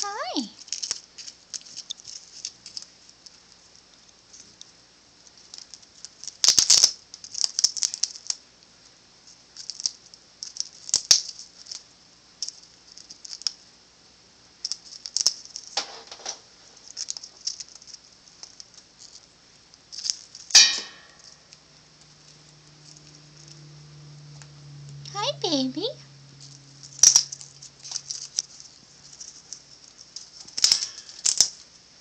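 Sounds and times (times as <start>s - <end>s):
cockatoo chewing with crunching clicks: 0.6s - 13.7s, 16.8s - 20.6s, 21.3s - 23.7s, 26.4s - 31.7s.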